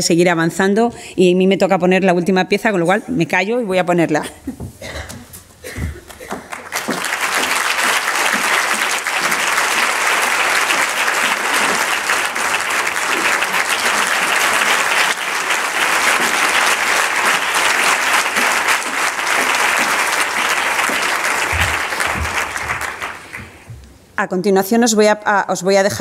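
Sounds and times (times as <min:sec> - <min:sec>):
audience applauding: 0:06.0 - 0:23.7.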